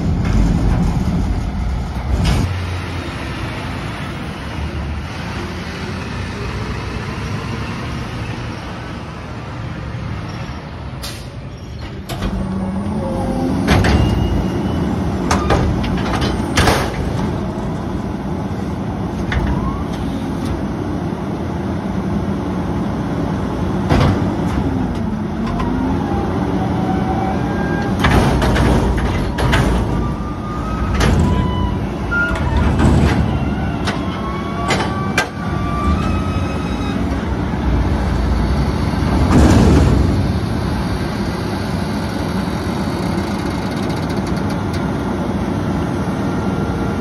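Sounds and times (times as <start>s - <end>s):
garbage truck diesel engine: 0.0s - 47.0s
metal bangs of cart: 39.1s - 40.6s.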